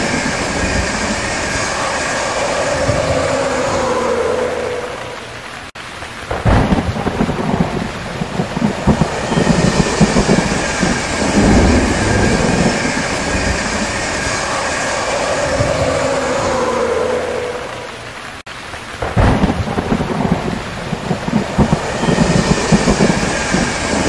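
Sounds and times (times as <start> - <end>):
heavy rain hissing: 0.0 - 24.0
rolling thunder: 9.7 - 14.3.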